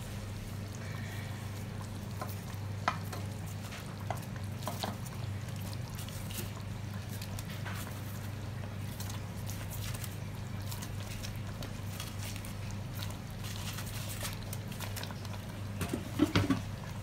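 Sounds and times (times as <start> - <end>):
sauce simmering and popping: 1.6 - 13.4.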